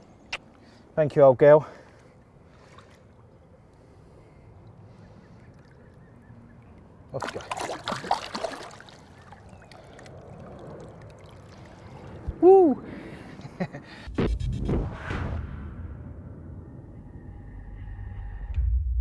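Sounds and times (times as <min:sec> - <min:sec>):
faint lapping water: 0:00.0 - 0:14.0
fish splashing in water: 0:04.6 - 0:12.2.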